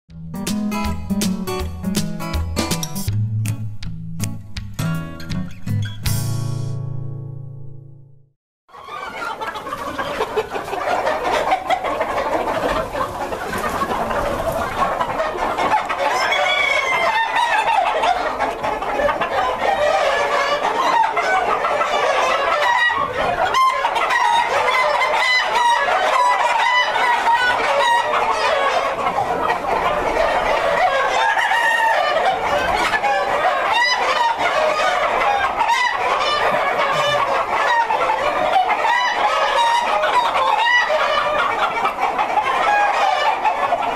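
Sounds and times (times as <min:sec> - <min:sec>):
chickens clucking and cackling: 0:08.7 - 0:43.9
roosters crowing: 0:13.9 - 0:43.9.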